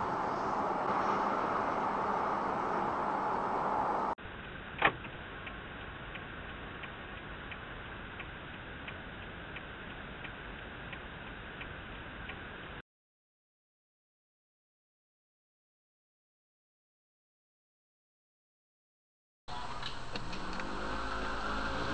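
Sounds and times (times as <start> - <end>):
low hum of driving: 0.0 - 12.8, 19.5 - 21.9
traffic and road noise: 0.0 - 12.8, 19.5 - 21.9
turn signal ticking: 4.8 - 12.5, 19.6 - 21.9.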